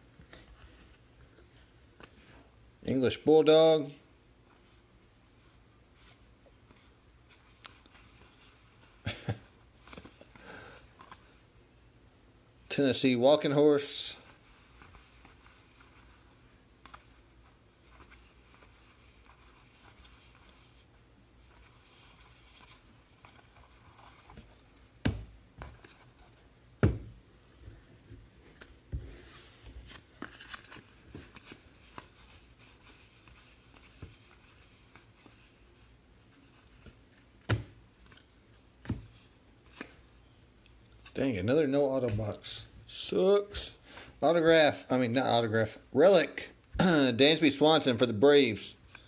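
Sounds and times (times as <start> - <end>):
trading cards rustling and sliding: 6.0 - 11.4, 27.6 - 37.4.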